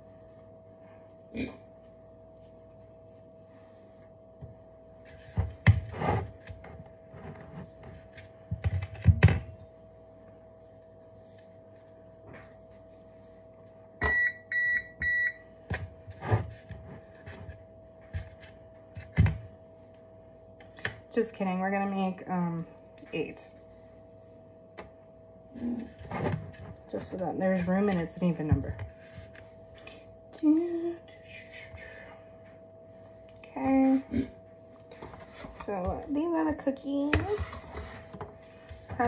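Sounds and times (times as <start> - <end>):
faint steady hum: 0.0 - 39.0
appliance beeps: 14.0 - 15.5.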